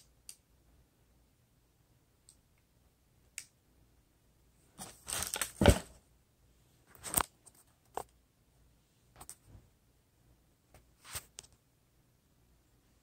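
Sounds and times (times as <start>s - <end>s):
tissue paper and cardboard box rustling: 4.8s - 6.0s.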